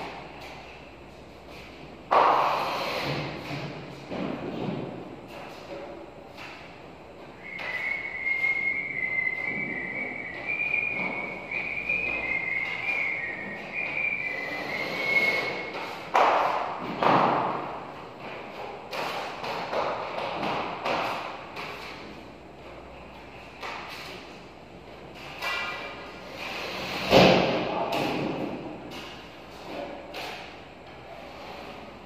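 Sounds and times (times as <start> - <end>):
high whistling changing pitch: 7.4 - 15.7.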